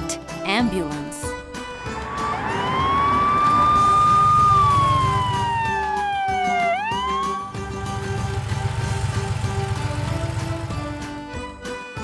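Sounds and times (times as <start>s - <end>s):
ambulance siren wailing: 1.8s - 7.8s.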